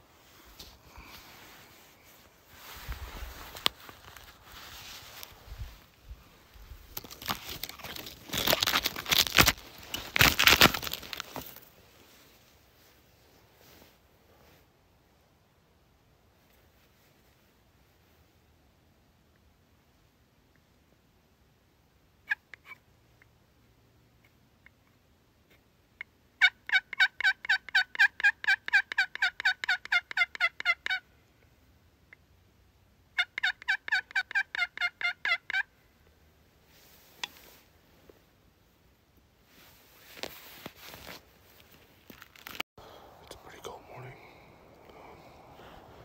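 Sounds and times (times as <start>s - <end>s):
synthetic jacket rustling: 1.2s - 5.9s, 39.5s - 42.6s
microphone handling noise: 2.6s - 11.5s
turkey call yelps: 26.4s - 31.0s, 33.2s - 35.7s.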